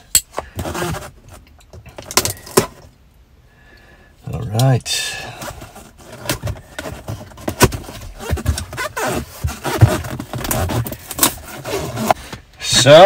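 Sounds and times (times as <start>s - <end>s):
cardboard box flaps scraping: 5.4s - 12.2s.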